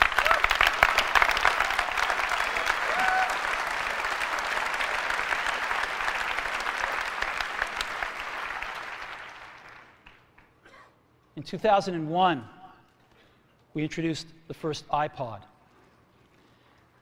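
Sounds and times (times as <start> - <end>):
large audience applauding: 0.0 - 10.5.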